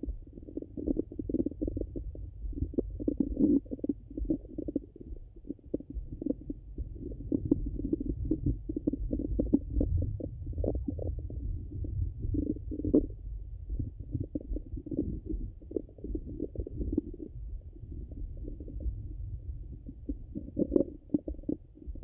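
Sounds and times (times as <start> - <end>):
stomach gurgles through stethoscope: 0.0 - 22.0.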